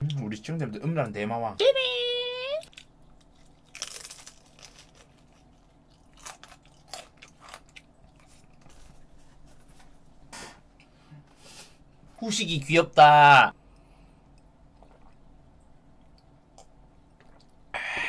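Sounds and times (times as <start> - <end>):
potato chip crunching: 2.6 - 8.8.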